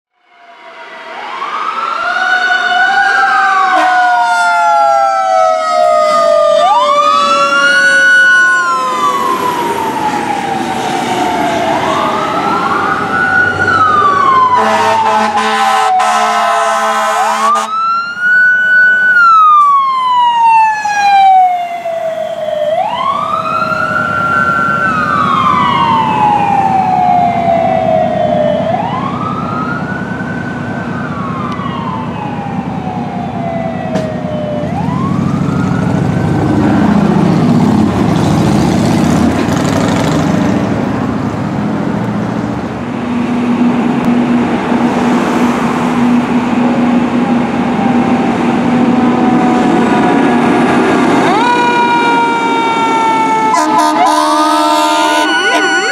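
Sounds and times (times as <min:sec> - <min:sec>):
sirens wailing: 0:00.2 - 0:55.9
air horn: 0:03.7 - 0:04.0, 0:14.5 - 0:17.8, 0:53.5 - 0:55.9.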